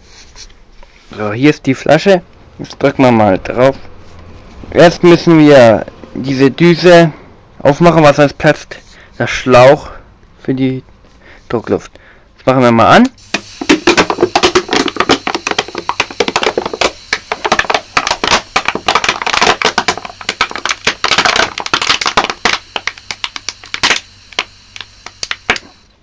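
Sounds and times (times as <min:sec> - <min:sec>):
plastic bottle crackling and popping: 0:13.4 - 0:25.8.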